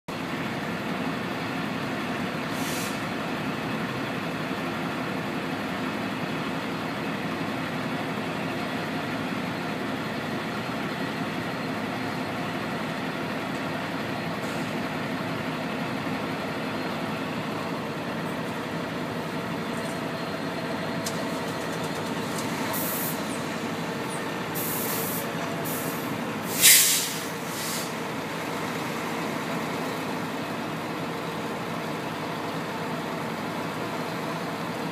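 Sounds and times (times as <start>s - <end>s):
diesel locomotive engine running: 0.1s - 34.9s
brake air hisses: 2.5s - 3.0s, 24.6s - 28.0s.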